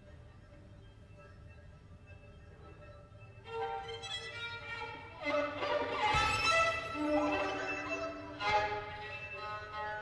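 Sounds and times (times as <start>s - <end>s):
bowed violins: 2.8s - 10.0s.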